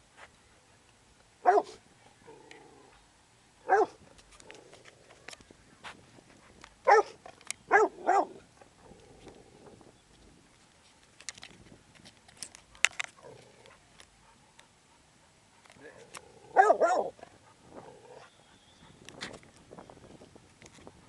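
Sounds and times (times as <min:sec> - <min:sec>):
puppy barking: 0:01.4 - 0:01.8, 0:03.7 - 0:04.0, 0:06.9 - 0:08.4, 0:16.5 - 0:17.1.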